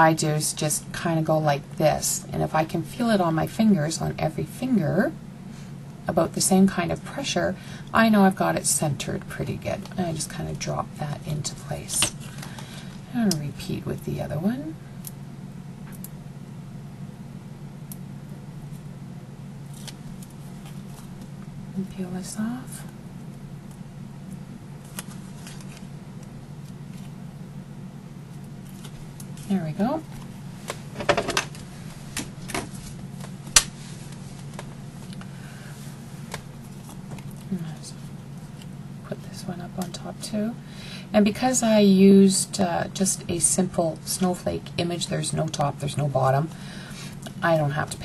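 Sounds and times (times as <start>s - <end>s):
low background hum: 0.0s - 48.0s
paper clicking and rustling: 24.8s - 25.9s.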